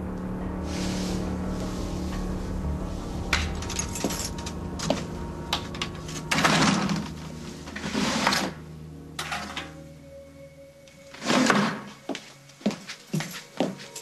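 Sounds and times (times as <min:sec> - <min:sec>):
low steady hum: 0:00.0 - 0:08.0.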